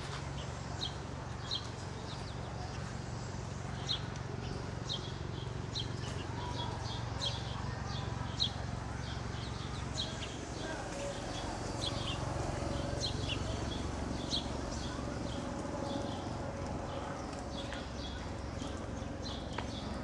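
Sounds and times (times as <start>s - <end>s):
low outdoor background rumble: 0.0s - 20.0s
small birds chirping: 0.3s - 20.0s.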